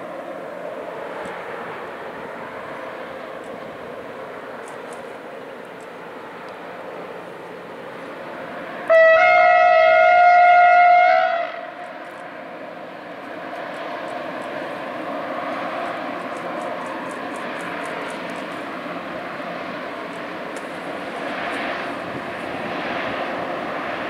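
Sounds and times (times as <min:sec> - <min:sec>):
train rumble: 0:00.0 - 0:24.0
train horn blast: 0:08.8 - 0:11.9.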